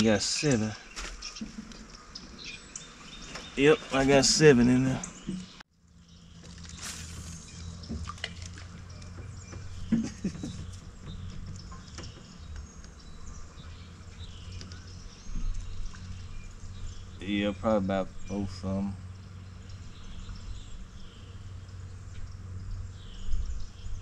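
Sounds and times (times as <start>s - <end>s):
water drips and splashes: 6.3s - 9.9s.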